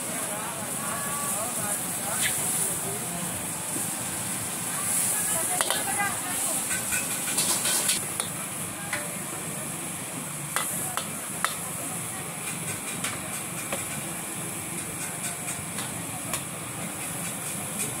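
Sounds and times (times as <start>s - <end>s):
noodles sizzling in a wok: 0.0s - 18.0s
metal spatula scraping a wok: 5.6s - 8.0s.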